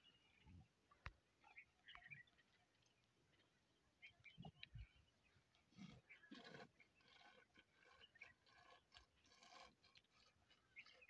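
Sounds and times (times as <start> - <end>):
camel gulping water: 5.6 - 11.0.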